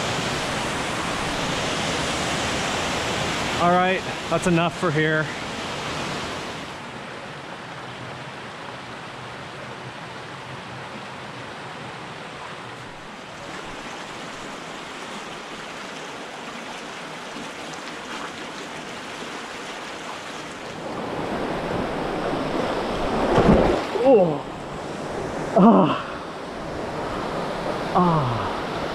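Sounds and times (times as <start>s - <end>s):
stream and small waterfalls rushing: 0.0s - 28.9s
feet splashing into water: 12.9s - 20.8s.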